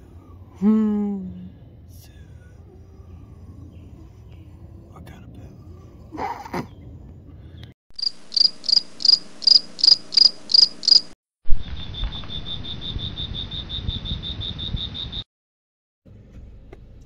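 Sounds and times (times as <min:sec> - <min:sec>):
low rumble: 0:00.0 - 0:07.7
crickets chirping: 0:08.0 - 0:15.3.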